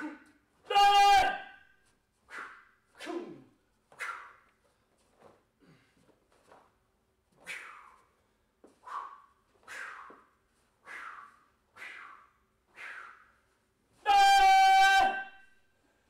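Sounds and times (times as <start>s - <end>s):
person yelling: 0.0s - 1.6s, 14.0s - 15.4s.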